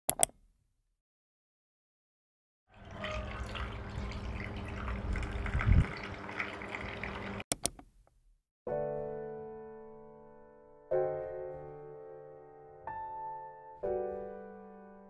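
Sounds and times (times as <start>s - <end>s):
sharp clicks: 0.1s - 0.4s, 7.5s - 7.9s
milk pouring over ice into glass: 2.8s - 7.4s.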